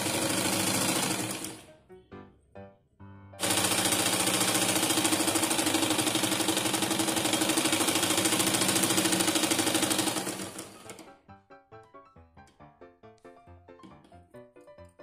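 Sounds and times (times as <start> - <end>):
sewing machine running: 0.0 - 1.7, 3.4 - 11.2.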